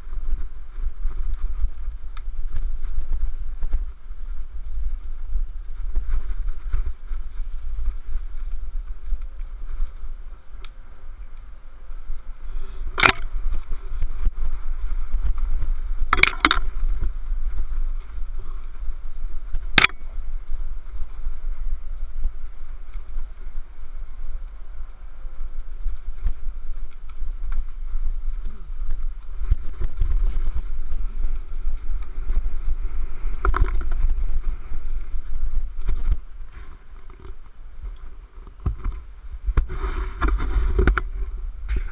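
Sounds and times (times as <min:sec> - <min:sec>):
wind buffeting microphone: 0:00.0 - 0:41.9
tyres crunching on dirt: 0:25.8 - 0:41.9.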